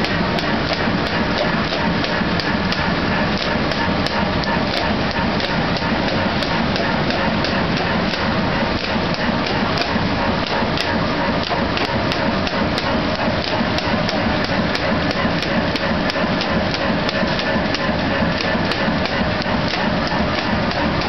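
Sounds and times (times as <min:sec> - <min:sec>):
printing press clattering: 0:00.0 - 0:21.0.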